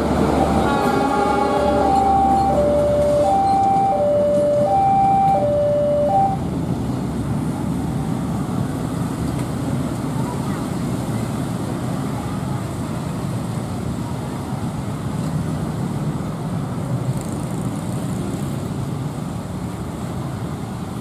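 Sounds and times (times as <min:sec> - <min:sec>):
motorcycles idling and pulling away: 0:06.8 - 0:21.0.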